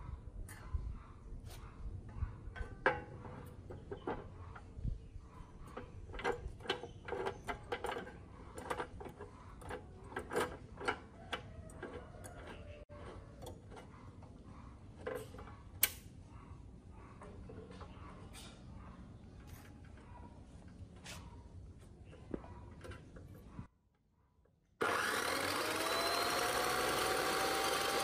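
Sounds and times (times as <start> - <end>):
metal tube rattling in vise: 5.7 - 13.8
vise screw turning: 5.7 - 13.9, 24.8 - 28.0.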